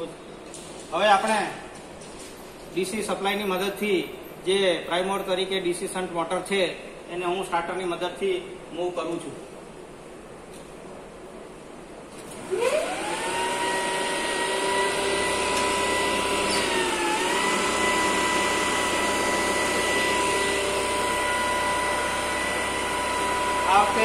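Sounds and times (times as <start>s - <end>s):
electric motor whine: 12.3s - 24.0s.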